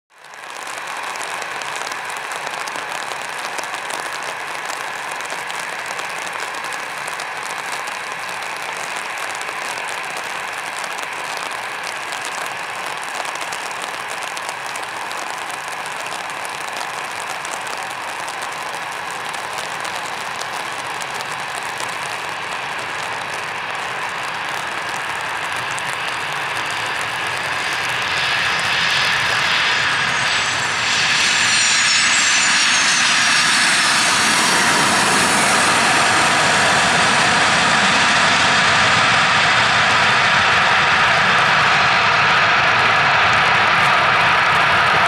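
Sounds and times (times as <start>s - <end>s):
rain falling steadily: 0.1s - 30.4s.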